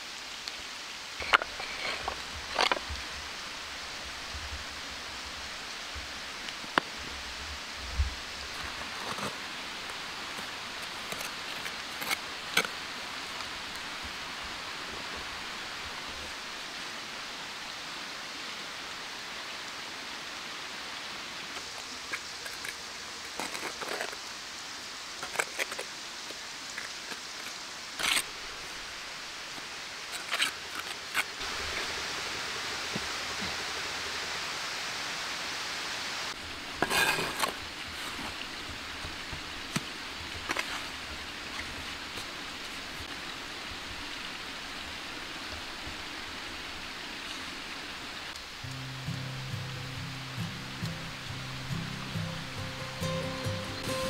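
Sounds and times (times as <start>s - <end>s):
steady hiss: 0.0s - 54.0s
stones being set: 1.2s - 3.0s, 36.7s - 41.6s
trowel scraping mortar: 36.8s - 38.4s.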